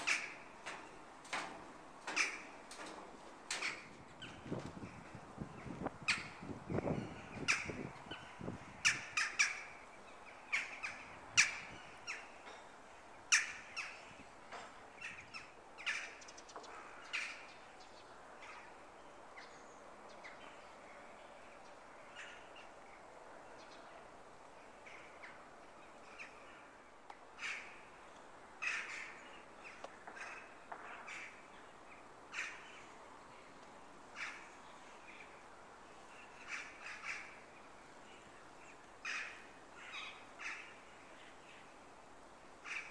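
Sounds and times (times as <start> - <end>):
crows cawing: 0.0 - 0.8, 28.6 - 29.2, 34.2 - 34.6, 36.4 - 37.5, 39.0 - 40.8, 42.6 - 42.9.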